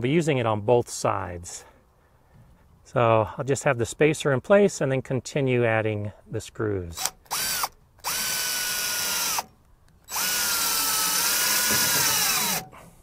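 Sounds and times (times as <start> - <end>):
cordless drill driving screws: 7.0 - 12.7.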